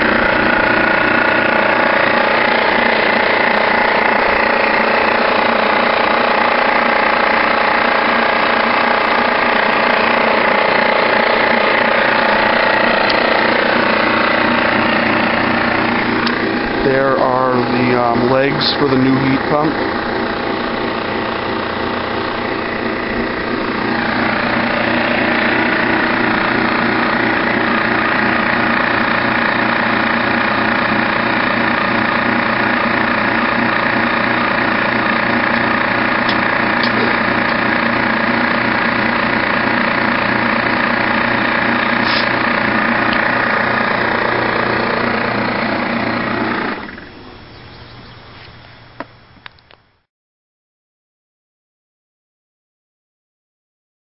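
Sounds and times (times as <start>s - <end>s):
compressor machine humming: 0.0s - 50.1s.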